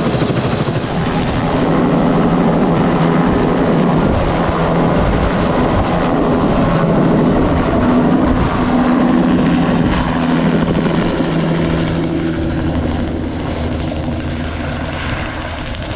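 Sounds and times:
helicopter rotor and turbine: 0.0 - 15.9.

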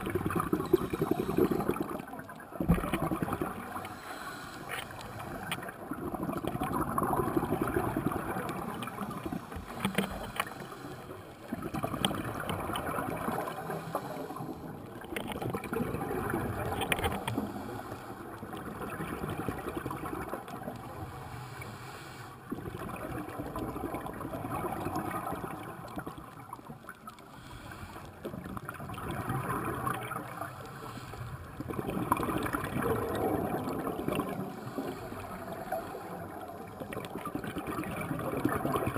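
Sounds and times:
underwater regulator bubbling: 0.0 - 10.8
faint clicks: 9.5 - 10.7.

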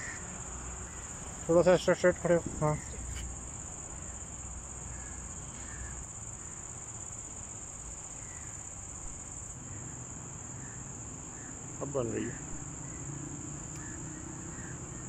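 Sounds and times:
faint bird calls: 13.7 - 15.0.

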